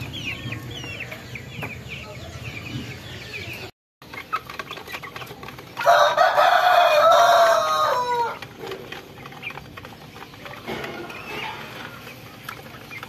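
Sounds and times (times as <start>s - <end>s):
chickens pecking at feed: 2.6s - 13.0s
rooster crowing: 5.8s - 8.4s.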